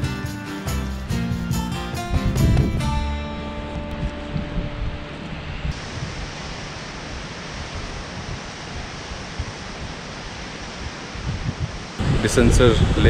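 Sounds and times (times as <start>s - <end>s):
guitar background music: 0.0s - 5.8s
wind blowing across microphone: 2.1s - 13.0s.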